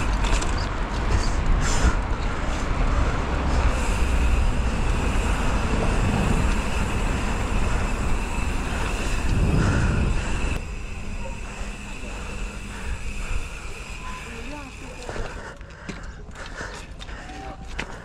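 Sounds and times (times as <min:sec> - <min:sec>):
wind rumbling on microphone: 0:00.0 - 0:14.0
road traffic: 0:00.0 - 0:18.0.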